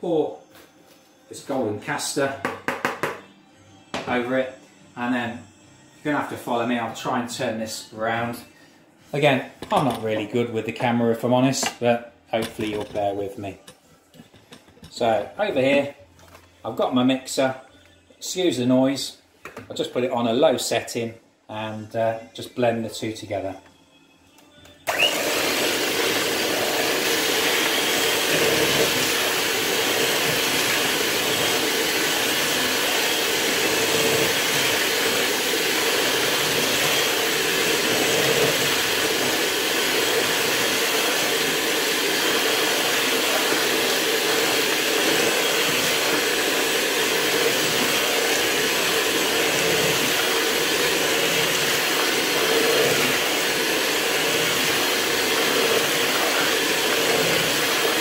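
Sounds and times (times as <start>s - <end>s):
electric hand mixer whirring: 24.8s - 58.0s.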